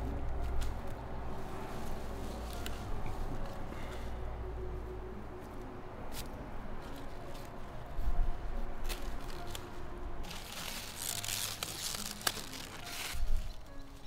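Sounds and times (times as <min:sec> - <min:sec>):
leaves rustling: 0:00.4 - 0:04.2, 0:06.1 - 0:14.0
plant stalks snapping: 0:08.8 - 0:09.7, 0:10.3 - 0:13.3.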